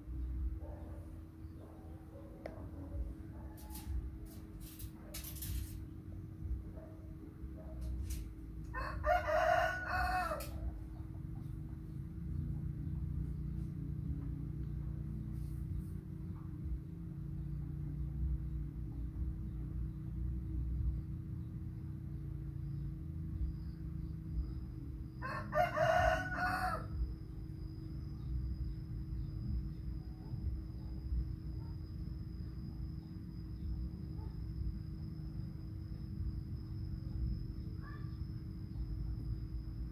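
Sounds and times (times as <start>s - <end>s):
steady low hum: 0.0s - 39.9s
rooster crowing: 8.6s - 10.9s, 25.1s - 27.1s.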